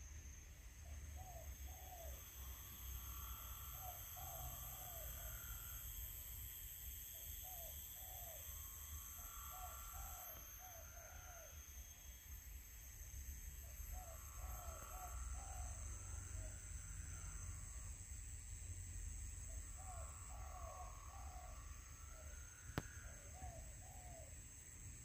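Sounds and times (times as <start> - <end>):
insects droning: 0.0 - 25.0
faint bird calls: 19.7 - 24.3.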